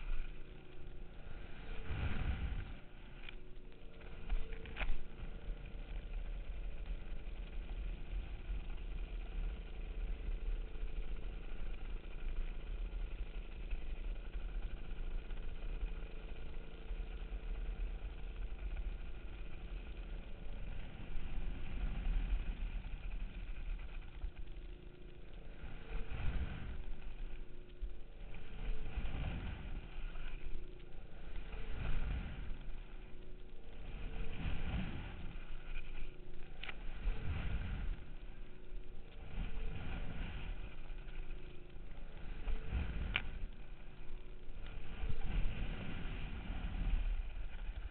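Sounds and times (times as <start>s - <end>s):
rushing surges of noise: 0.0s - 7.6s, 18.6s - 47.9s
boat engine running: 0.0s - 47.9s.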